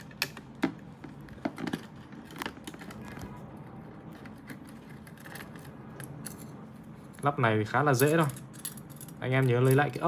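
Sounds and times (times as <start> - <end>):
small metal parts clicking: 8.0 - 10.0.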